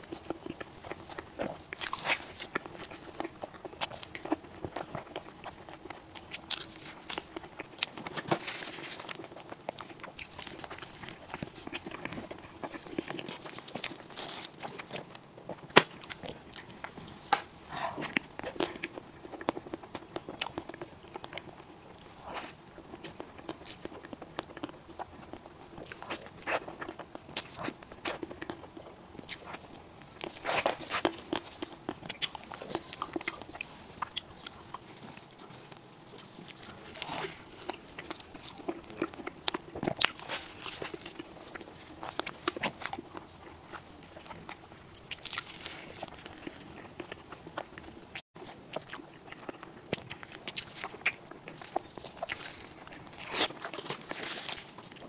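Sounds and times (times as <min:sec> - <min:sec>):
wet mouth clicks and chewing: 0:00.0 - 0:55.0.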